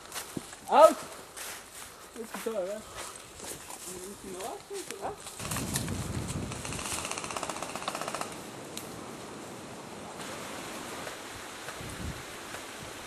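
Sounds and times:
airsoft gun full-auto burst: 6.5 - 8.4
outdoor hiss: 6.7 - 13.0.

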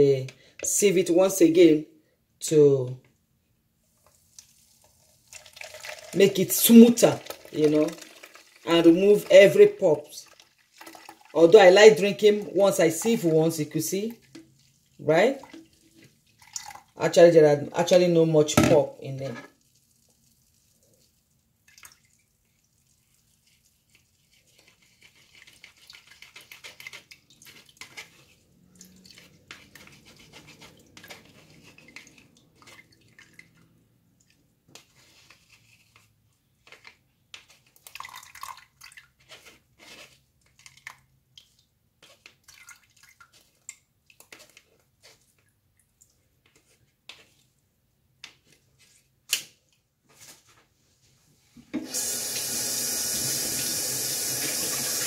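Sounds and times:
juice dripping: 4.1 - 9.5, 10.2 - 11.4, 14.1 - 17.0, 19.5 - 24.1, 37.8 - 39.2
utensil scraping in wire sieve: 23.4 - 32.9, 34.7 - 37.8, 39.2 - 40.8.

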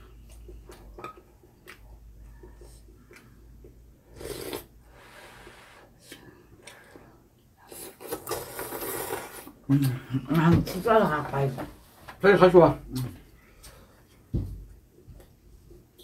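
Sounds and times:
noodles being slurped: 4.0 - 6.1, 7.6 - 9.7.

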